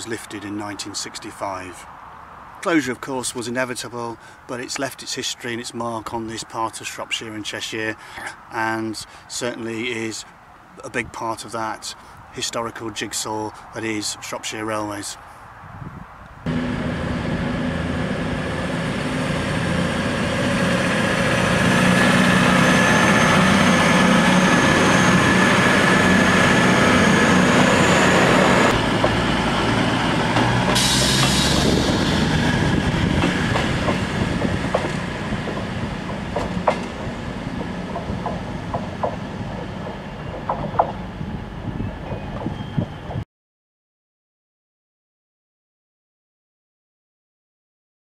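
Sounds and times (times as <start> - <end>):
diesel train engines humming: 16.5 - 43.2.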